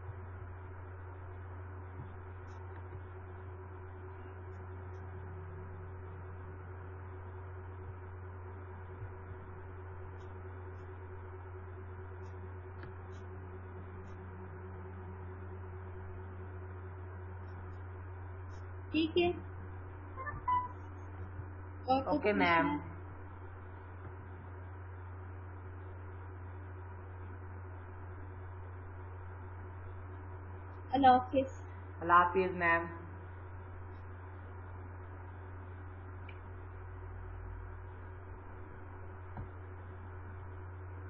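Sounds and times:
low electrical hum: 0.0 - 41.0
thin high tone: 20.2 - 20.9.

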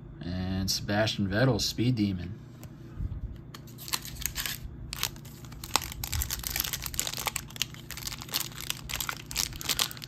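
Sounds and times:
wrapper crinkling: 3.7 - 10.0.

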